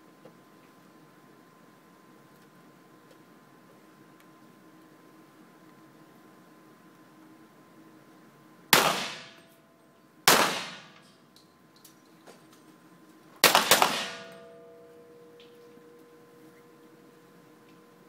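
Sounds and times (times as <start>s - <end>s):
pistol shots echoing indoors: 8.8s - 9.4s, 10.3s - 11.0s, 13.4s - 14.8s
faint metallic ringing: 14.1s - 18.0s.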